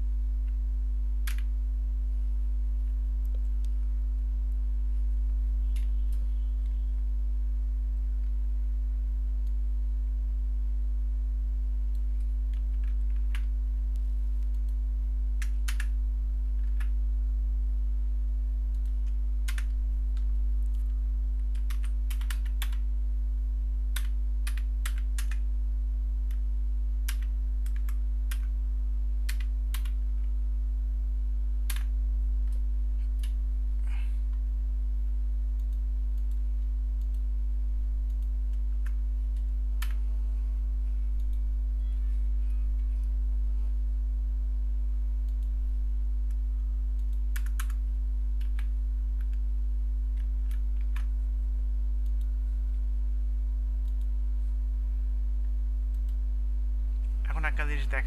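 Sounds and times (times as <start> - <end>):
low electrical hum: 0.0 - 58.0
keyboard typing: 15.4 - 16.0, 18.7 - 22.8, 24.0 - 25.4, 27.1 - 28.5, 29.3 - 30.0, 47.0 - 47.8.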